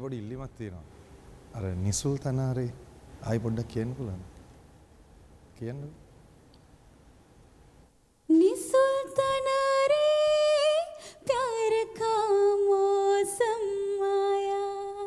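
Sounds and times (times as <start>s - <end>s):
woman singing into microphone: 8.3s - 15.0s.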